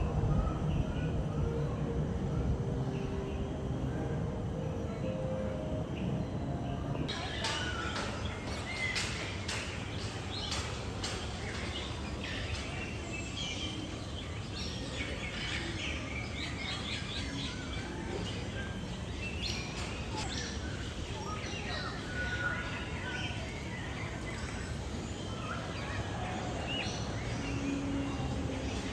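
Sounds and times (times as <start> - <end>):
birds chirping and calling: 7.0 - 28.9.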